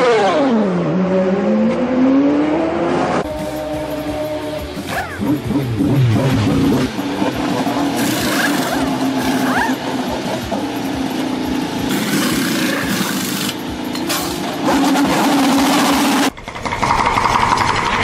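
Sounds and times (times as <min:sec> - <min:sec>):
pneumatic wheel guns whirring: 0:07.9 - 0:09.8.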